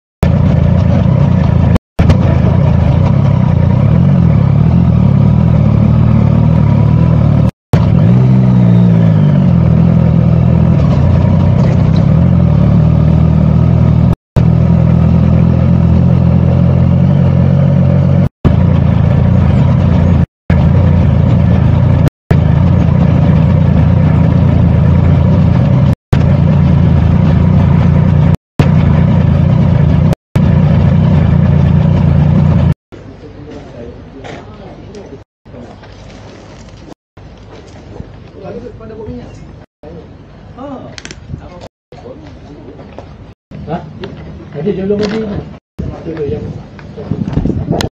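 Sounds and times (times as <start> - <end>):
motorcycle engine running: 0.2 - 33.1.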